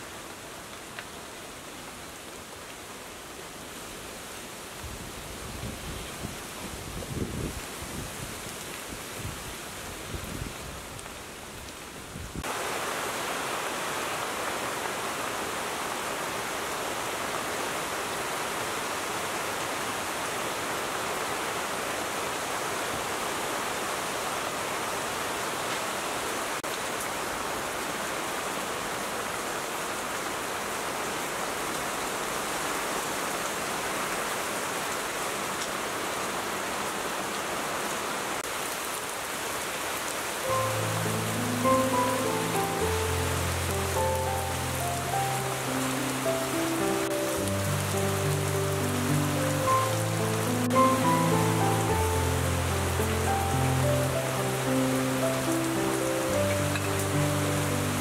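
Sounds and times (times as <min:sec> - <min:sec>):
steady rain: 0:00.0 - 0:58.0.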